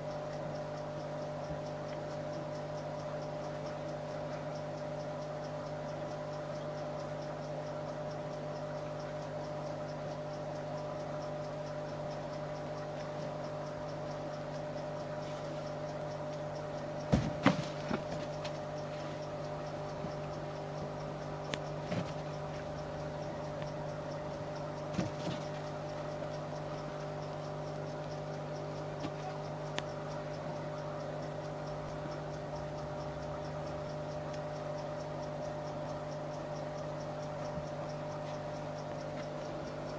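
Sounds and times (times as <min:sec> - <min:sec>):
steady low hum: 0:00.0 - 0:39.9
taps on a rubber balloon: 0:17.1 - 0:18.5.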